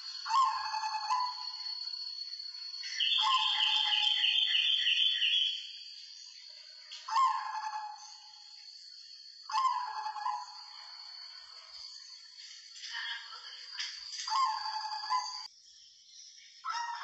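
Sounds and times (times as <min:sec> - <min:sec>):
dove cooing: 0:00.0 - 0:01.4.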